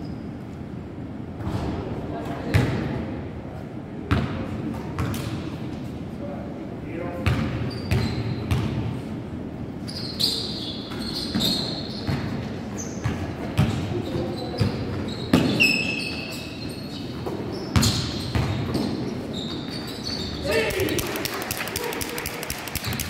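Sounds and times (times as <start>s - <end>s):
basketball bouncing on gym floor: 2.5s - 2.8s, 7.2s - 8.9s, 13.0s - 15.6s, 17.2s - 19.8s
sneakers squeaking on court: 7.2s - 8.8s, 9.9s - 20.5s.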